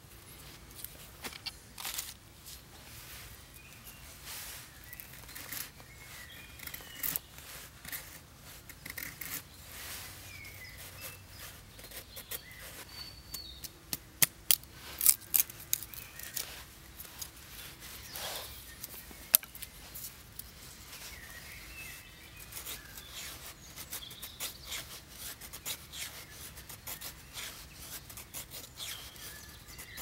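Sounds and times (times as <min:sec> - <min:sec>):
faint birds chirping: 0:00.0 - 0:30.0
knife snipping dry sticks: 0:13.3 - 0:17.3, 0:18.8 - 0:19.7.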